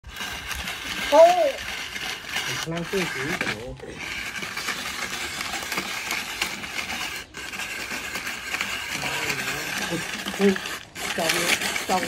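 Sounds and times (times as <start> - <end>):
ice shaver grinding ice: 0.0 - 12.0.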